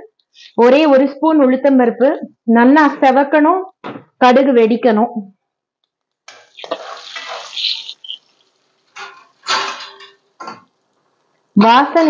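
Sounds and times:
seeds sizzling in hot oil: 6.3s - 11.4s.

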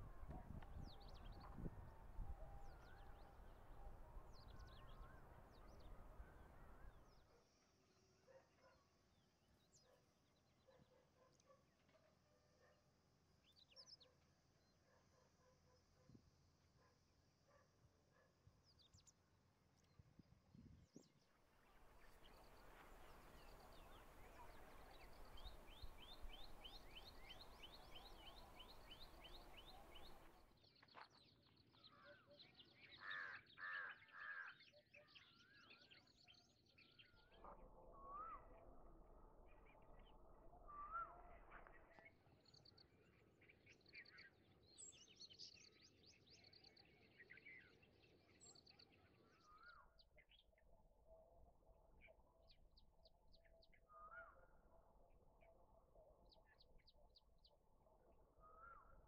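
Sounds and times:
birds chirping and calling: 22.0s - 30.4s.

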